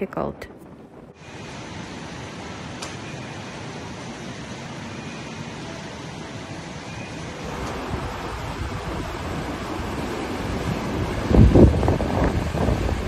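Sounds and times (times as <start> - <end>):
floodwater rushing across floor: 1.2 - 13.0
surf breaking on rocky shore: 7.4 - 13.0
wind on microphone: 7.5 - 13.0.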